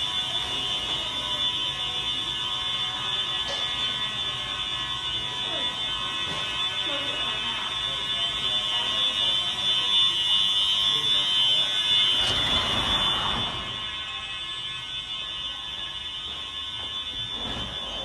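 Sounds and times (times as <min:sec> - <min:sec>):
fire alarm horns: 0:00.0 - 0:18.0.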